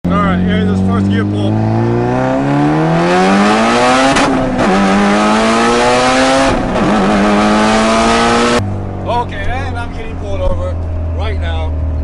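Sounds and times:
car engine accelerating hard: 0:00.1 - 0:12.0.

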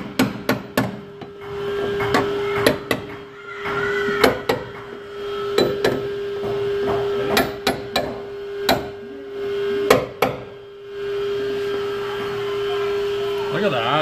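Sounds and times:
knocks on sheet steel: 0:00.0 - 0:01.3, 0:09.9 - 0:10.5
steady low hum: 0:00.0 - 0:14.0.

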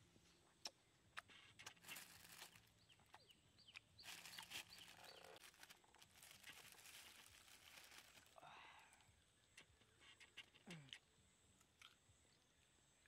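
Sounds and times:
plastic bag crinkling: 0:01.6 - 0:02.8, 0:04.0 - 0:08.4.

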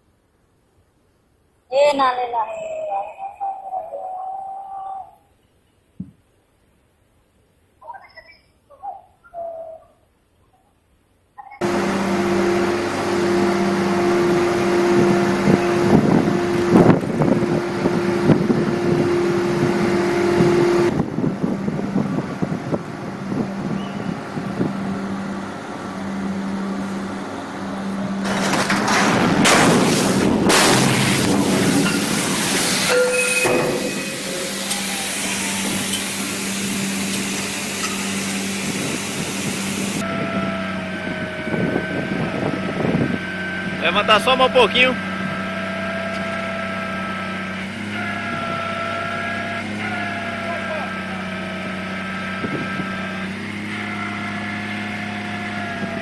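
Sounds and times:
crane machinery hum: 0:11.5 - 0:56.0
higher hum: 0:11.6 - 0:43.8
rough clatter: 0:28.2 - 0:32.1.

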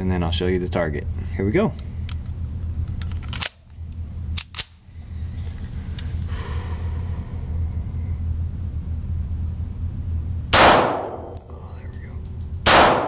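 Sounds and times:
steady low hum: 0:00.0 - 0:13.0
gunshot cracks: 0:10.6 - 0:11.4, 0:12.6 - 0:13.0.

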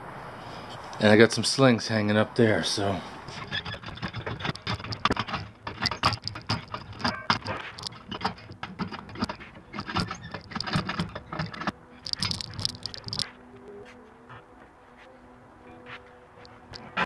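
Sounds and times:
metallic clanks and rattles: 0:03.3 - 0:13.4, 0:16.4 - 0:17.0.

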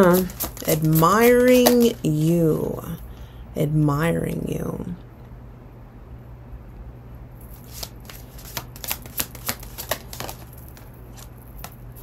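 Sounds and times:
soft handling of cards: 0:00.0 - 0:02.0, 0:07.5 - 0:12.0
cards being shuffled by hand: 0:00.0 - 0:02.1, 0:07.5 - 0:12.0.

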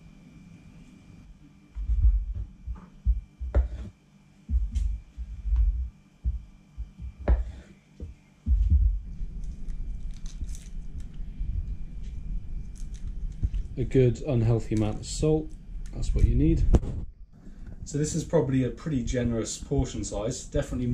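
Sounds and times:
faint high whine: 0:00.0 - 0:20.9.

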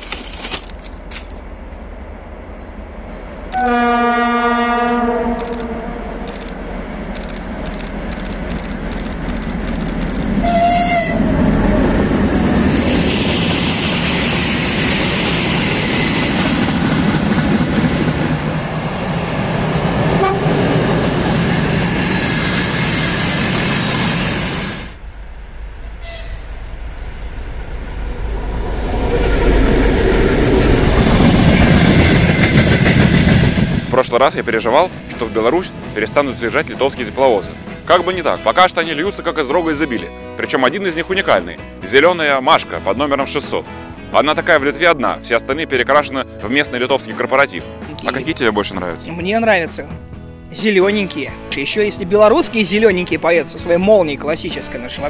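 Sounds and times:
diesel locomotive engine: 0:00.0 - 0:55.0
locomotive horn blast: 0:03.5 - 0:06.3, 0:10.4 - 0:12.0, 0:20.1 - 0:21.1, 0:25.9 - 0:26.6.

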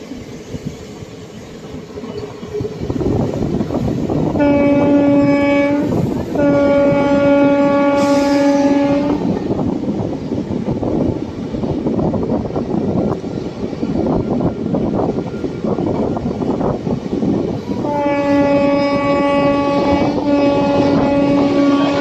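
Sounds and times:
train wheels clattering on track: 0:00.0 - 0:22.0
locomotive horn blasts: 0:04.4 - 0:09.4, 0:17.8 - 0:22.0.

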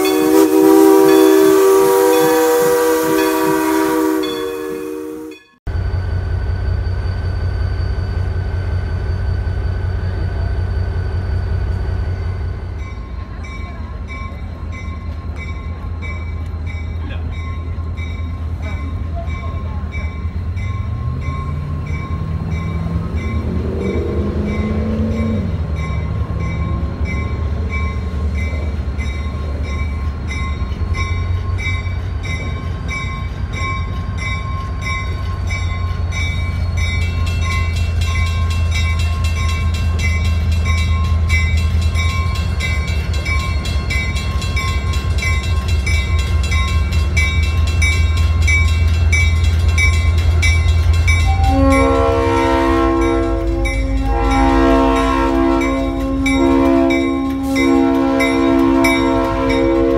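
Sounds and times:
locomotive bell ringing: 0:00.0 - 0:05.6, 0:06.6 - 0:59.9
diesel locomotive engine drumming: 0:00.0 - 0:59.9.

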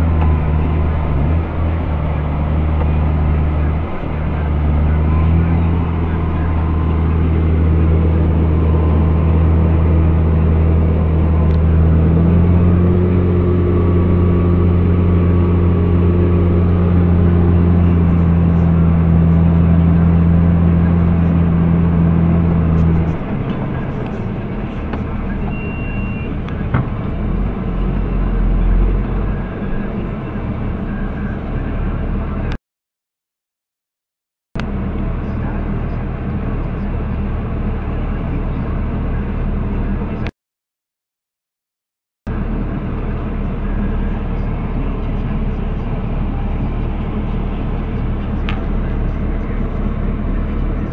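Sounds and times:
tractor engine running: 0:00.0 - 0:32.6, 0:42.3 - 0:50.9.

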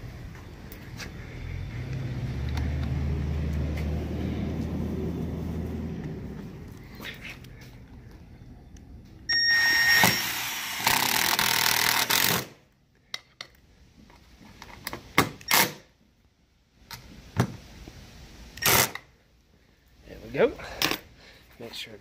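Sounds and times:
cordless driver driving screws: 0:09.5 - 0:12.5.

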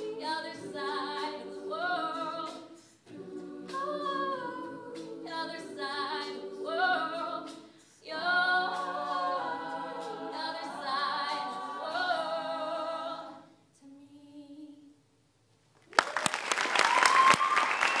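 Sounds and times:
women singing in harmony: 0:00.0 - 0:14.9
audience applause: 0:15.9 - 0:18.0.

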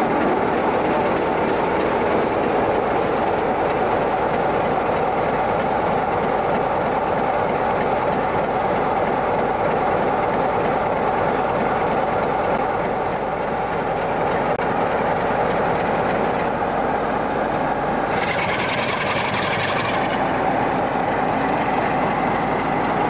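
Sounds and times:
train rolling rumble: 0:00.0 - 0:23.0.

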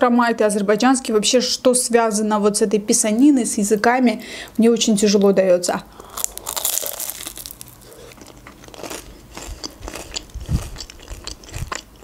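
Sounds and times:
crunchy chewing: 0:06.0 - 0:12.0.

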